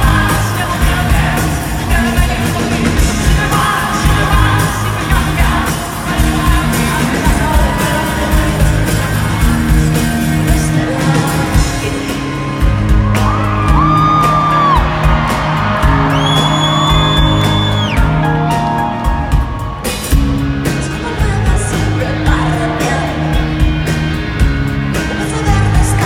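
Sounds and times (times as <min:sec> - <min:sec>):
person singing: 0:00.0 - 0:12.9, 0:20.6 - 0:23.7, 0:24.9 - 0:26.0
live pop-rock band: 0:00.0 - 0:26.0
audience whooping and shouting: 0:11.8 - 0:20.3.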